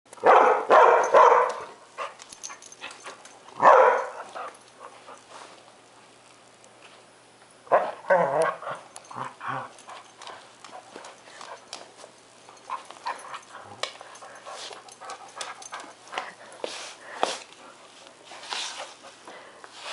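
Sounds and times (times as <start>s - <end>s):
dog whining and barking: 7.7s - 9.7s.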